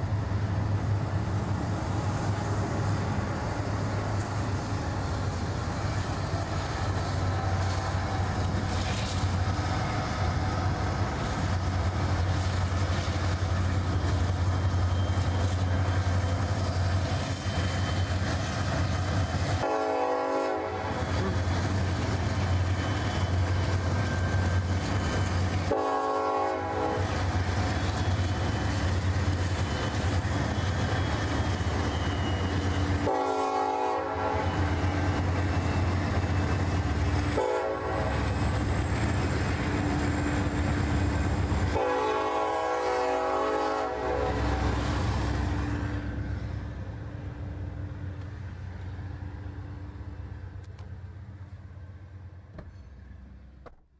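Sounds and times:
train rumbling: 0.0 - 53.9
train horn blasts: 19.6 - 21.3, 25.6 - 27.2, 33.0 - 34.8, 37.3 - 38.3, 41.7 - 44.8.

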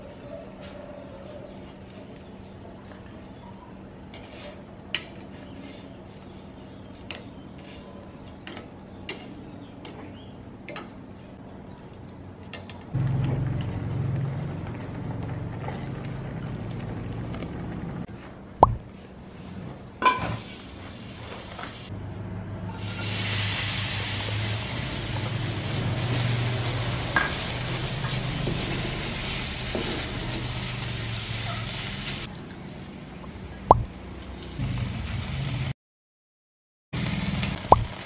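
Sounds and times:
water bubbling: 18.6 - 18.8, 33.6 - 33.9
sausage sizzling in oil: 22.7 - 32.3, 37.0 - 38.0.

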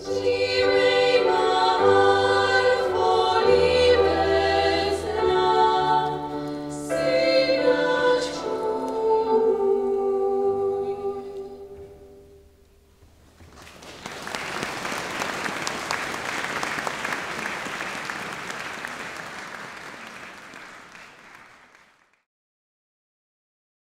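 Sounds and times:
audience applauding: 13.4 - 22.2.

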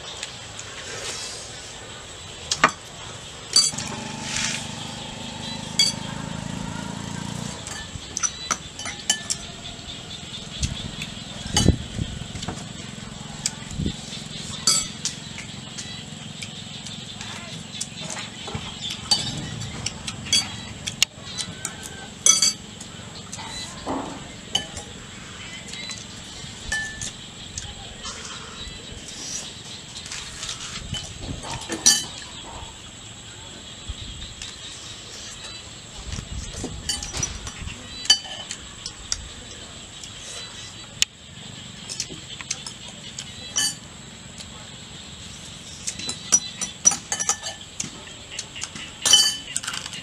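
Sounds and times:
spoons clinking on ceramic bowls: 7.7 - 9.5, 14.6 - 15.1, 22.2 - 22.6, 36.9 - 38.5, 43.6 - 43.8, 46.3 - 47.6, 49.0 - 49.9.

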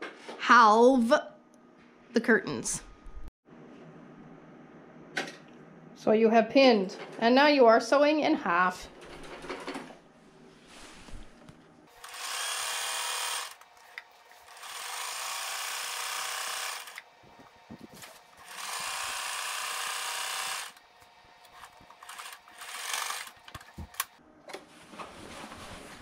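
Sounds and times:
sewing machine motor running: 11.9 - 17.4, 18.0 - 20.8, 21.5 - 24.1.

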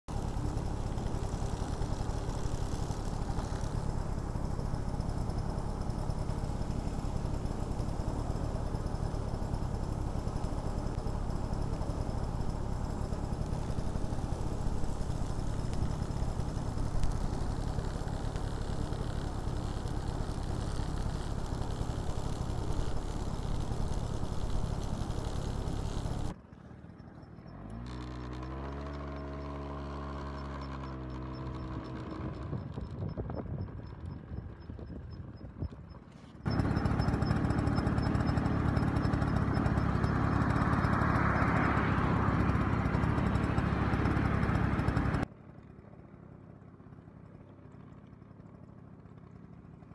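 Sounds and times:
motorcycle engine idling: 0.0 - 49.9
motorcycle pulling away: 0.1 - 35.1, 36.4 - 45.3
steady hiss: 0.2 - 26.3.

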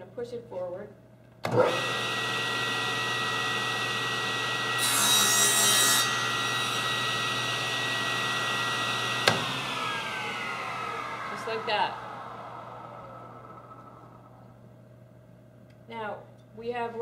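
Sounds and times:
table saw running whine: 1.5 - 14.6
saw blade cutting wood: 4.6 - 7.8.

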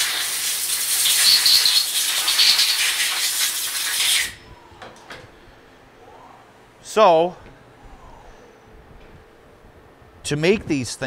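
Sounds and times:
air blow gun hissing: 0.0 - 4.4.

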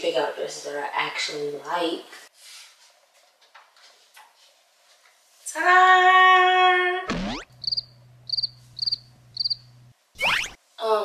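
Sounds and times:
cricket chirps: 7.3 - 10.6.

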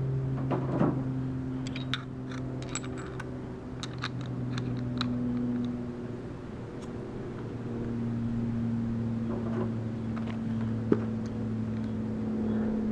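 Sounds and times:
steady low hum: 0.0 - 12.9
small metallic clicks and scrapes: 1.6 - 5.8.

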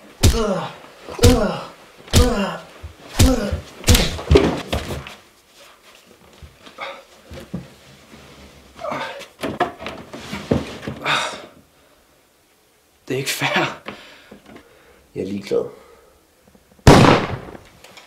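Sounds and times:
men grunting and shouting: 0.2 - 4.3, 8.8 - 9.3
thuds and slams of fighting: 3.2 - 4.9.

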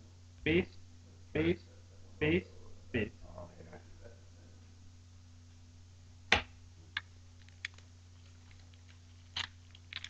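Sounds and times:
foil wrapper crinkle: 7.4 - 10.0.

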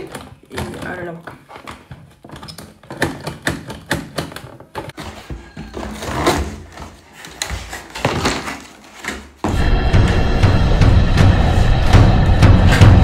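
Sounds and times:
cardboard and plastic rustling: 0.0 - 9.5.

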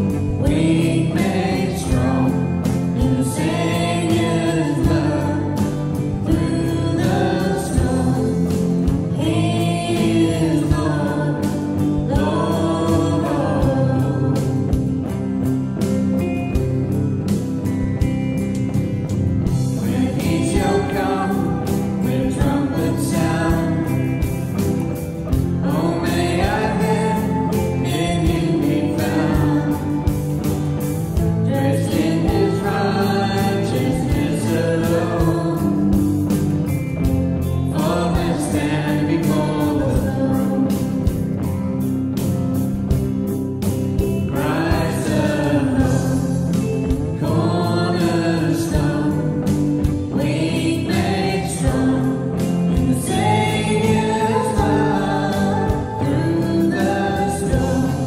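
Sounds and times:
person singing worship song: 0.0 - 14.6, 19.8 - 24.1, 25.6 - 30.0, 37.7 - 41.0, 47.2 - 49.4, 50.1 - 58.0
strummed electric guitar chords: 0.0 - 58.0.

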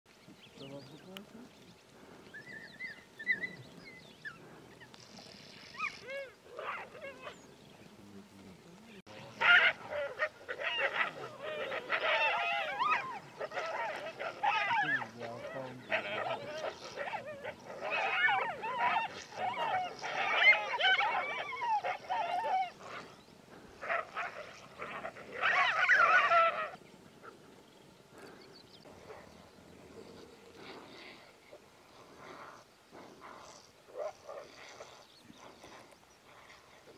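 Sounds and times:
animals making high-pitched calls: 9.3 - 23.1.

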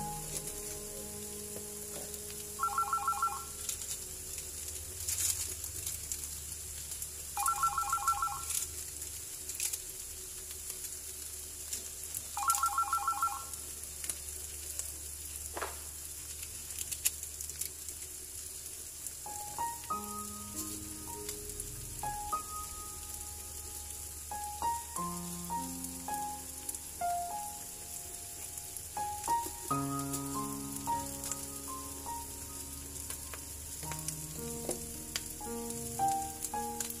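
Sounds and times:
frying pan sizzle: 0.0 - 37.0
telephone ringing: 2.6 - 3.6, 7.4 - 8.5, 12.4 - 13.5.

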